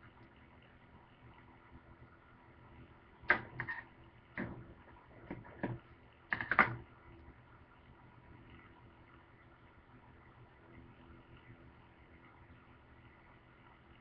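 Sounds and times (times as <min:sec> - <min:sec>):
objects clicking on plastic board: 0:05.3 - 0:06.8.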